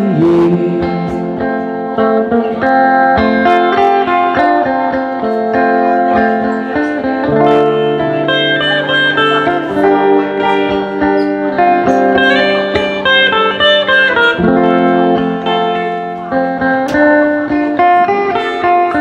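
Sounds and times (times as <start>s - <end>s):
acoustic guitar strumming: 0.0s - 19.0s
electric guitar lead melody: 0.0s - 19.0s.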